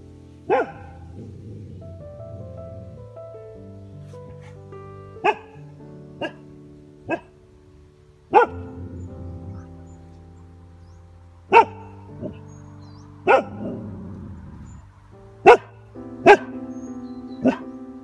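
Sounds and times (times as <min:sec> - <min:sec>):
soft piano music: 0:00.0 - 0:18.0
dog barking: 0:00.5 - 0:01.6, 0:05.2 - 0:05.6, 0:06.2 - 0:06.4, 0:07.1 - 0:07.3, 0:08.3 - 0:09.8, 0:11.5 - 0:12.4, 0:13.3 - 0:13.9, 0:15.4 - 0:16.6, 0:17.4 - 0:17.6.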